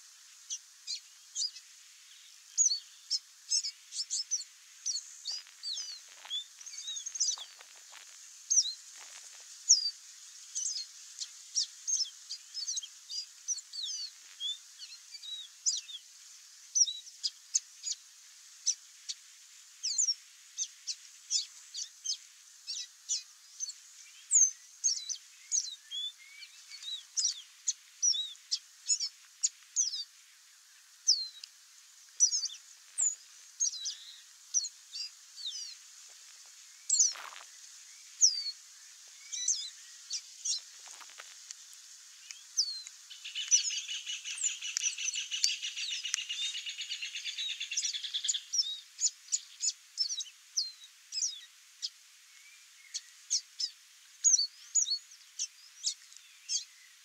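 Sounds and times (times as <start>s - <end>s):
bird singing whistled notes: 0.5s - 1.6s, 2.2s - 7.6s, 9.7s - 10.0s, 10.6s - 10.9s, 19.8s - 20.7s, 21.3s - 27.4s, 28.0s - 29.1s, 29.8s - 30.1s, 31.1s - 31.5s, 32.2s - 35.8s, 36.8s - 37.2s, 37.9s - 38.6s, 39.2s - 40.6s, 42.2s - 57.0s.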